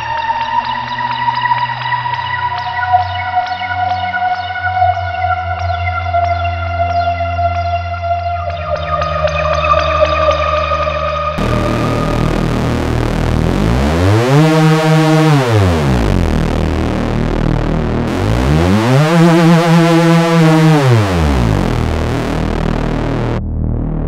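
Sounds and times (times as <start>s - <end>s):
deep synthesizer bass: 11.4s - 24.0s
gliding synthesizer notes: 11.4s - 24.0s.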